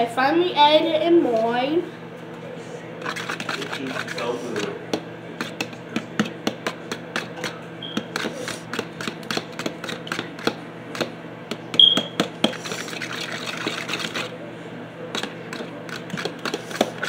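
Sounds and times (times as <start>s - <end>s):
fork tapping bowl beating eggs: 3.0s - 14.3s, 15.1s - 17.0s.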